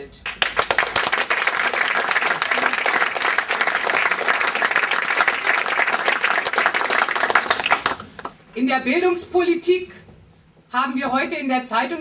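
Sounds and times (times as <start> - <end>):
audience applauding: 0.2 - 8.4.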